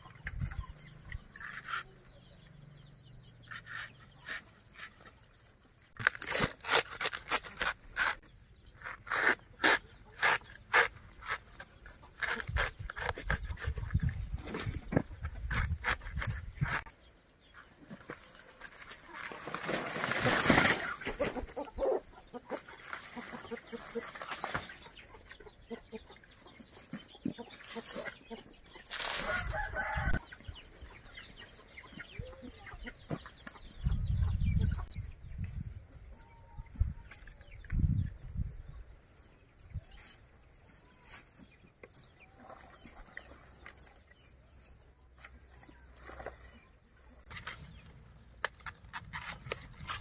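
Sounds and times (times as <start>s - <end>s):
chickens clucking: 17.6s - 47.1s.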